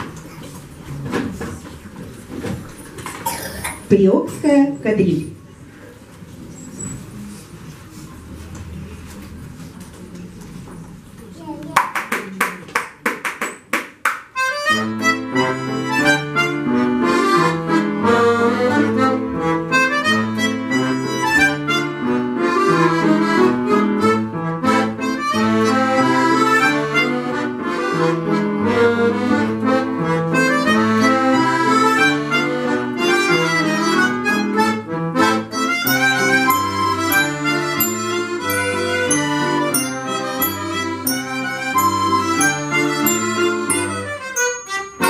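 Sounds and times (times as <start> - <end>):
accordion ensemble with violin and piano: 14.4 - 45.0.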